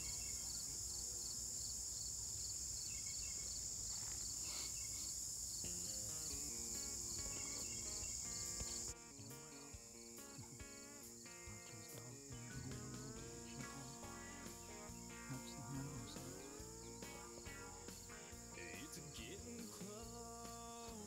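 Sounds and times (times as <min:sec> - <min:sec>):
high-pitched insect chorus: 0:00.0 - 0:21.0
soft background music: 0:05.8 - 0:21.0.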